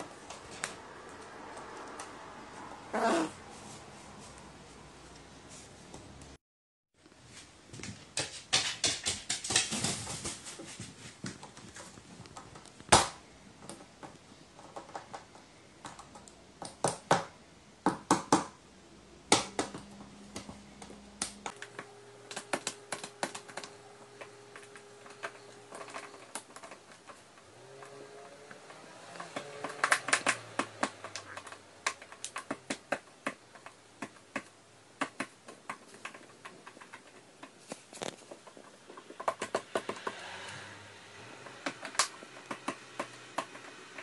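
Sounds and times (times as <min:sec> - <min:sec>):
bird beak and claws tapping wood: 0:28.6 - 0:37.6.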